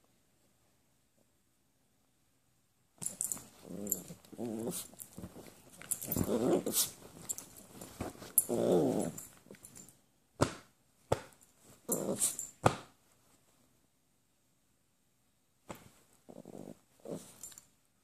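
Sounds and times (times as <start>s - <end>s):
small dogs growling: 3.6s - 5.0s, 6.0s - 7.0s, 8.4s - 9.2s, 11.9s - 12.4s, 16.3s - 17.4s.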